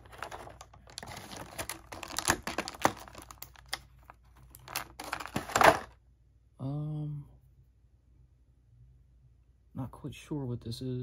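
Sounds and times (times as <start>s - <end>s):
plastic blister tray crinkling: 0.0s - 5.9s.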